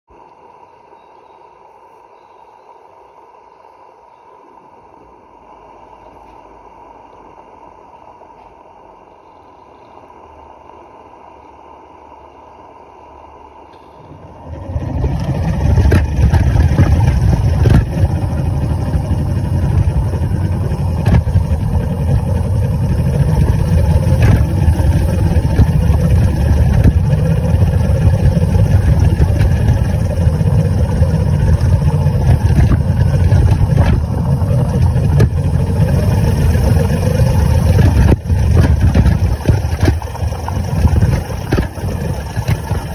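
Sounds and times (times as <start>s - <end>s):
steam wagon rumbling: 14.0s - 42.9s
wheels clicking over paving: 14.2s - 42.9s.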